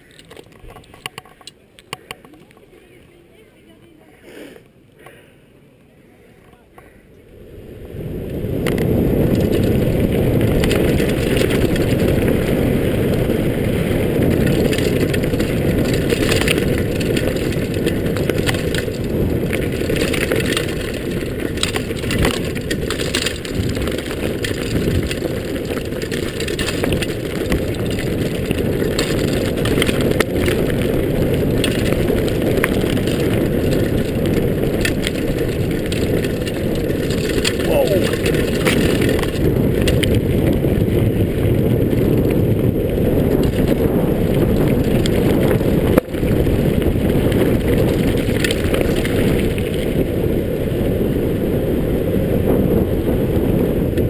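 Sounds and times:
bike rattles and clicks: 0.0s - 3.8s, 8.0s - 54.0s
wind rush: 7.3s - 54.0s
tyre rumble on gravel: 8.5s - 50.2s.

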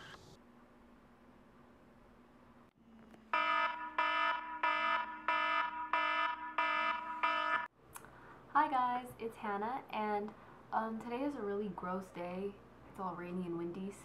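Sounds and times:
electronic alarm tone pulsing: 3.3s - 7.7s.

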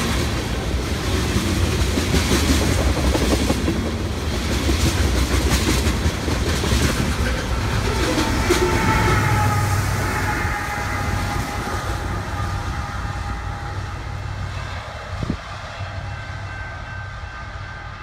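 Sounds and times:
locomotive engine rumble: 0.0s - 18.0s
rail noise: 0.0s - 18.0s.

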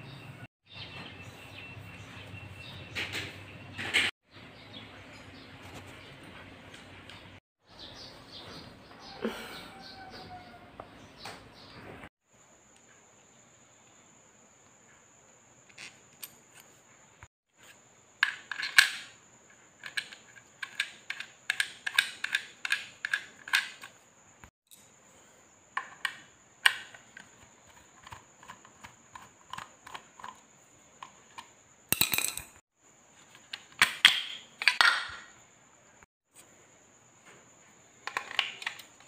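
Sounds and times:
parts clattering: 17.6s - 24.1s, 25.7s - 32.6s, 33.2s - 35.4s, 38.0s - 39.0s
hard parts clicking and tapping: 18.2s - 24.0s, 25.8s - 32.6s, 33.3s - 35.3s, 38.0s - 39.0s.

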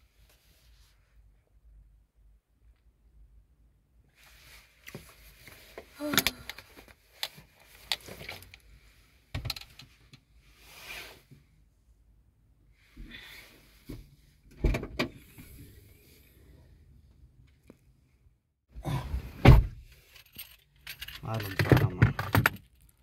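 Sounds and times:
knocks and clicks of handling: 20.9s - 22.7s.

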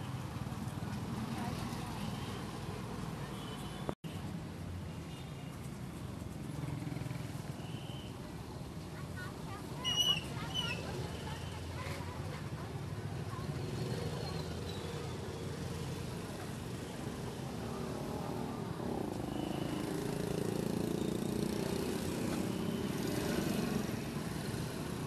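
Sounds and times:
motorbike engines rumbling: 9.1s - 25.0s.

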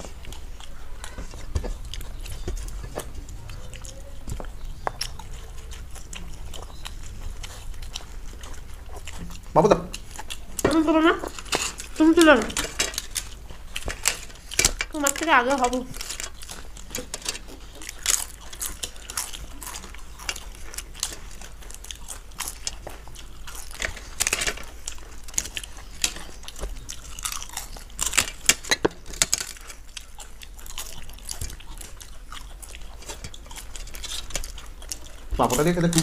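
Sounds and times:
people crunching and chewing: 0.0s - 36.0s.

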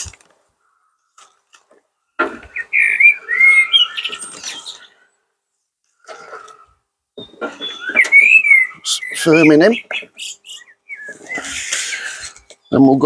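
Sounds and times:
compost rustling: 0.0s - 2.7s
songbird singing: 0.0s - 13.0s.

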